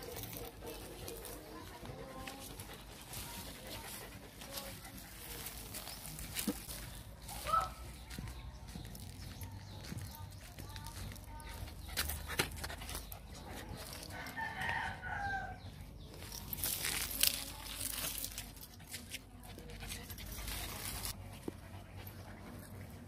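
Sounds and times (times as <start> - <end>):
scuffing and rustling: 0.0 - 19.2
rooster crowing: 14.1 - 15.6.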